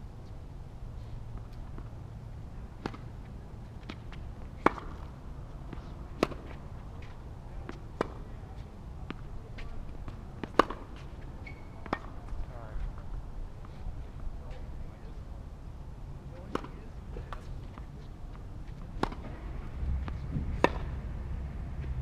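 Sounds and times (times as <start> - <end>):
tennis ball bouncing: 1.3 - 2.1, 2.7 - 12.5, 16.5 - 21.2
racquets striking tennis ball: 2.7 - 12.6, 16.4 - 22.0
steady low rumble: 16.9 - 22.0.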